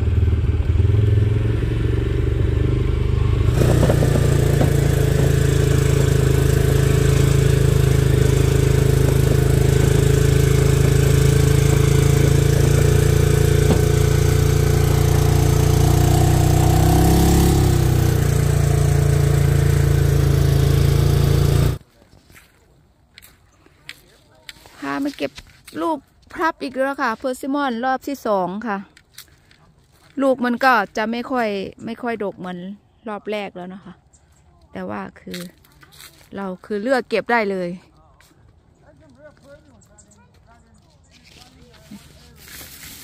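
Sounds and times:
utility vehicle engine running: 0.0s - 21.8s.

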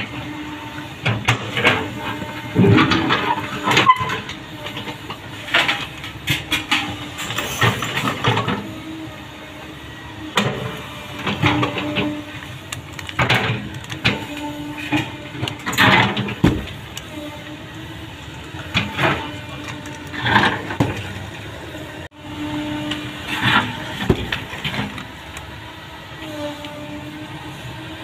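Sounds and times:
excavator engine and hydraulics whine: 0.0s - 28.0s
bucket scraping dirt: 10.4s - 21.6s, 22.2s - 25.0s.

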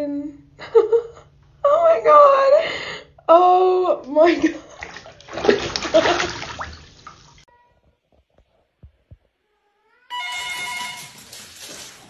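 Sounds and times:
bath water splashing: 4.0s - 7.5s
held high tones: 9.8s - 11.4s.

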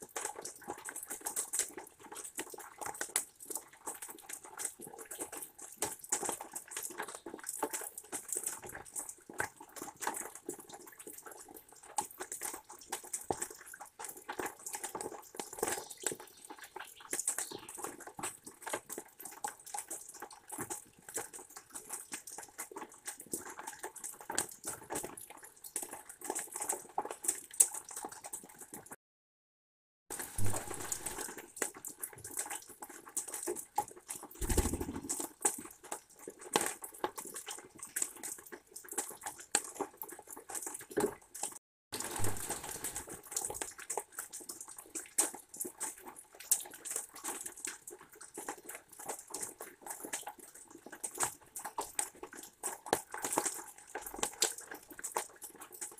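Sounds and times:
rain pattering on wood: 30.1s - 55.9s.

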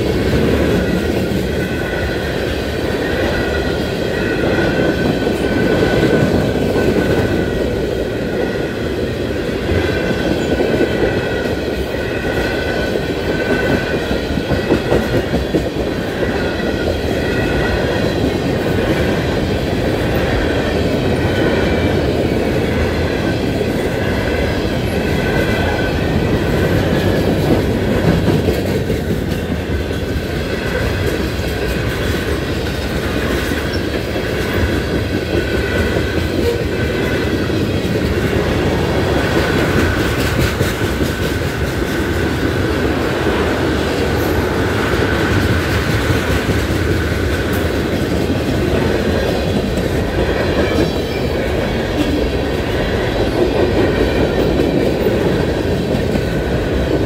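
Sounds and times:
crossing bell ringing: 0.0s - 28.0s
freight train rumble: 0.0s - 57.0s.

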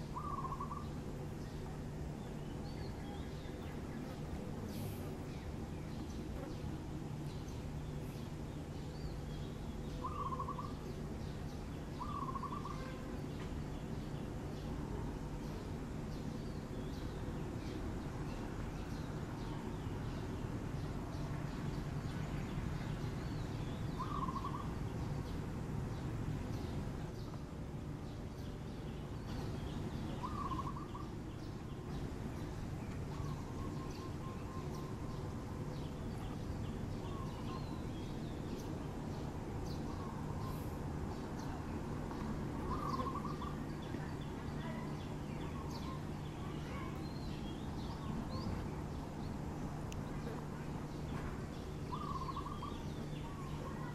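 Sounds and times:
bird chirps: 0.0s - 6.6s, 7.3s - 14.2s, 22.8s - 25.4s, 28.4s - 49.3s, 50.2s - 53.9s.

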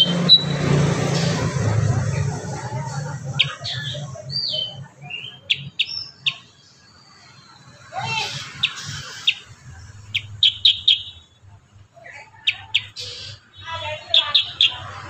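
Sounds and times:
bird chirping and whistling: 0.0s - 0.7s, 3.4s - 6.5s, 8.0s - 11.3s, 12.4s - 15.0s.

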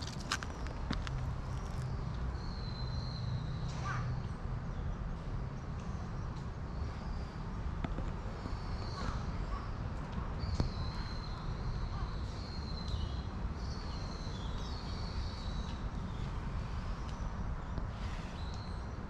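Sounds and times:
birds calling: 8.3s - 19.0s.

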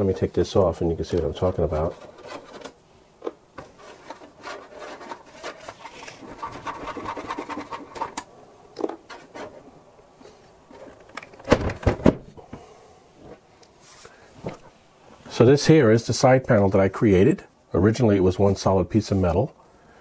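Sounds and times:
metal panel scraping: 3.7s - 8.2s.

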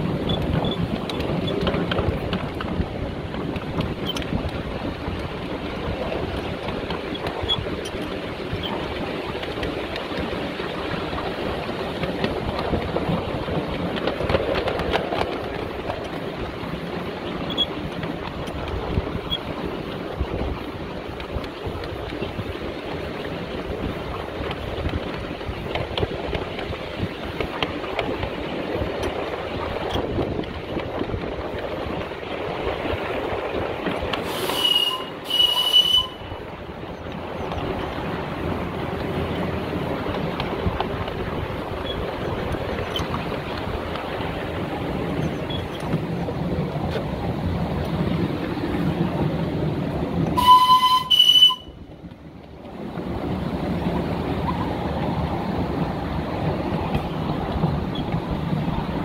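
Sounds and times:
carriage wheels rumbling on rails: 0.0s - 59.0s
wind on microphone: 0.0s - 59.0s
steam hissing: 34.2s - 36.0s
steam locomotive whistle: 34.3s - 36.4s, 50.3s - 51.8s.

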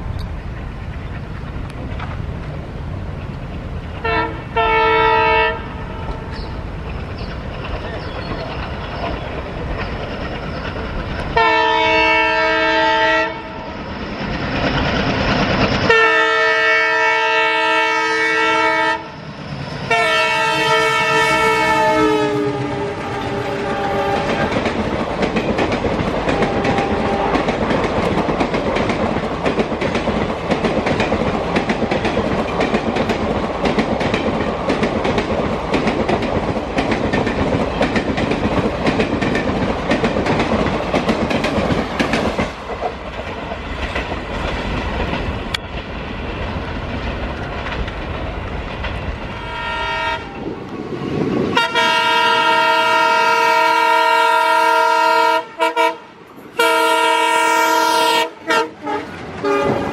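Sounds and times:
diesel locomotive horn: 4.0s - 6.5s, 11.4s - 13.7s, 15.8s - 19.2s, 19.8s - 24.7s, 26.2s - 27.6s, 49.2s - 50.6s, 51.5s - 59.9s
train wheels clattering over rail joints: 6.1s - 12.4s, 13.8s - 16.2s, 22.6s - 49.4s.

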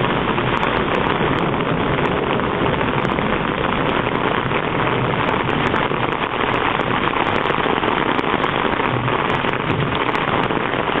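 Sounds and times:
ice storm hissing: 0.0s - 11.0s.

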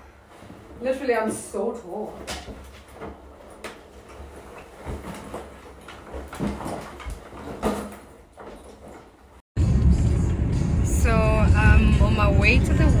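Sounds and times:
wheeled suitcase thuds: 2.2s - 9.2s
low rumble: 9.6s - 13.0s.

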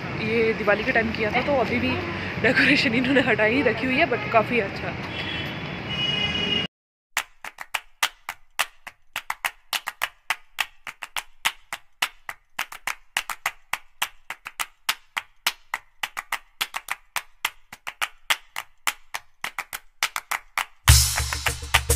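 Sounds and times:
sharp percussive clicks: 7.2s - 21.9s.

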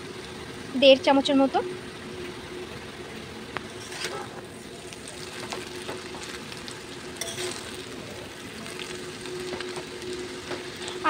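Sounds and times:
noodles sizzling in hot oil: 0.0s - 11.0s
metal spatula scraping pan: 3.8s - 4.4s, 7.2s - 7.9s.

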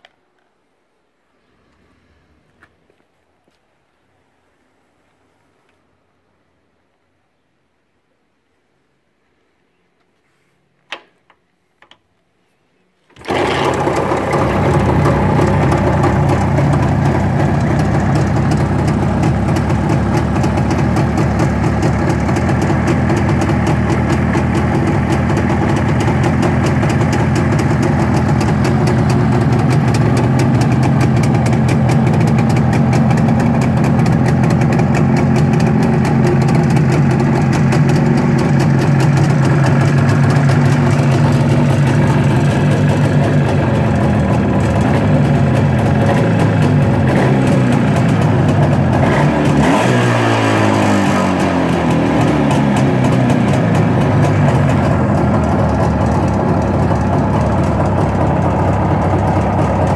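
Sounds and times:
motorcycle engine starting and idling: 13.1s - 59.9s.

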